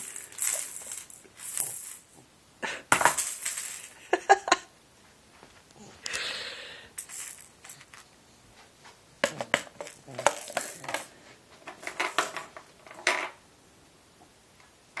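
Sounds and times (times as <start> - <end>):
plastic baby rattle shaking: 0.0 - 2.2, 7.0 - 8.1, 9.3 - 11.1.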